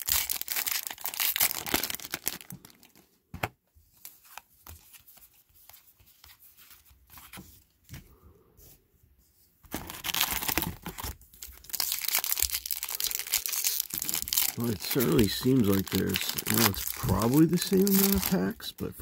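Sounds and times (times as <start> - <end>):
foil pack crinkling and tearing: 0.0 - 3.0, 9.7 - 18.7.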